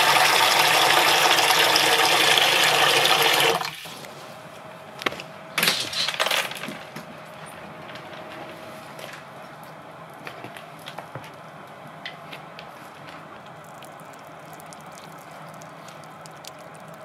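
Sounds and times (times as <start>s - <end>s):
water dripping and trickling: 13.4s - 17.0s.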